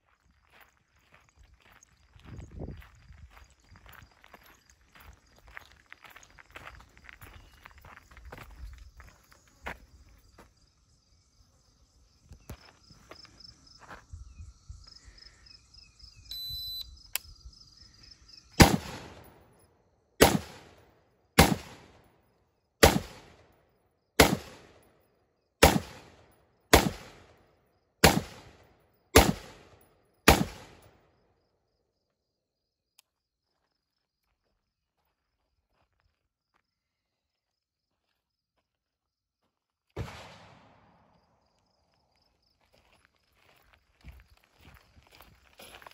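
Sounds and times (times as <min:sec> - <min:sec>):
insects buzzing: 0:06.2 - 0:19.4
shot timer beep: 0:16.3 - 0:16.9
gunshots: 0:18.6 - 0:19.4, 0:20.2 - 0:20.8, 0:21.4 - 0:22.0, 0:22.8 - 0:23.5, 0:24.2 - 0:24.8, 0:25.6 - 0:27.4, 0:28.0 - 0:28.6, 0:29.2 - 0:30.8, 0:40.0 - 0:41.0.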